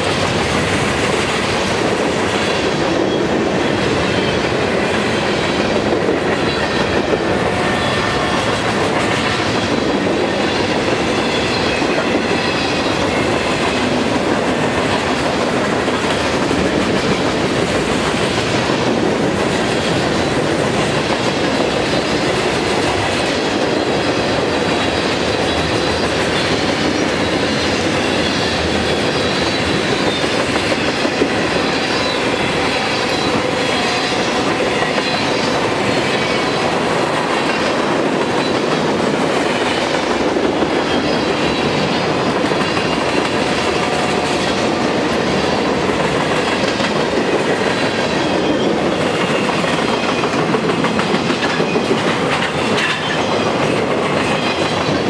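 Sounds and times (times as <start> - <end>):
clickety-clack over rail joints: 0.0 - 55.0
train wheels rumbling on rails: 0.0 - 55.0.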